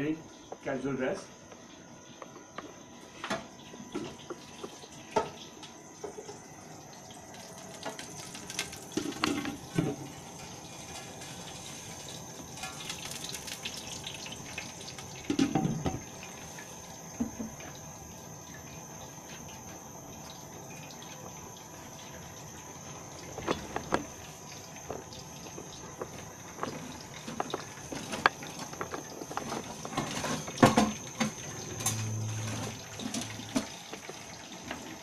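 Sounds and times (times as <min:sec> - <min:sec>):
gas burner hissing: 0:22.3 - 0:35.0.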